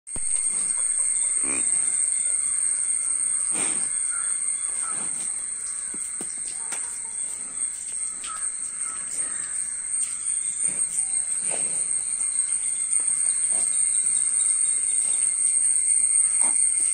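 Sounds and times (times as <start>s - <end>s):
high-pitched whine: 0.1s - 16.9s
farmyard birds calling: 0.2s - 15.6s.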